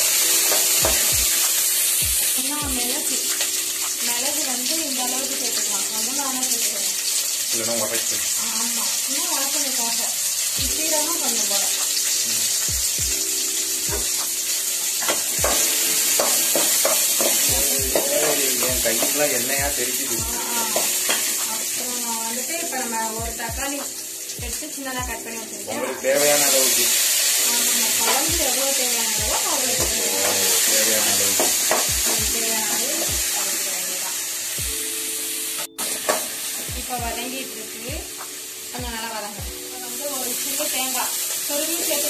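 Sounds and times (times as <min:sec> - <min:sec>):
background music: 0:00.0 - 0:42.0
spices sizzling in oil: 0:00.0 - 0:42.0
spoon stirring in pan: 0:15.0 - 0:18.0.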